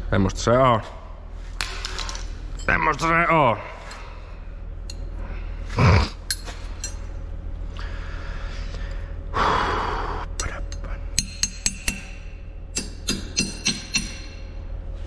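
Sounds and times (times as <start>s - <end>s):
steady low hum: 0.0s - 15.0s
man breathing: 7.7s - 10.4s.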